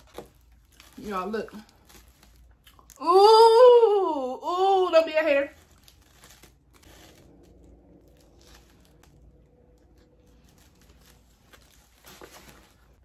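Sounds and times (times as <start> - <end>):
person chewing food: 1.9 - 3.0.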